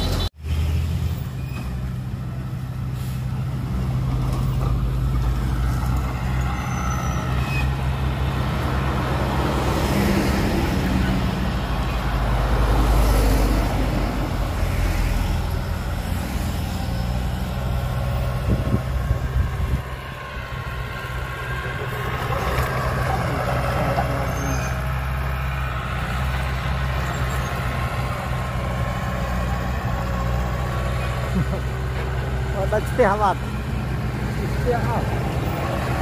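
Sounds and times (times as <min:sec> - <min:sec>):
heavy diesel engine running: 0:15.4 - 0:36.0.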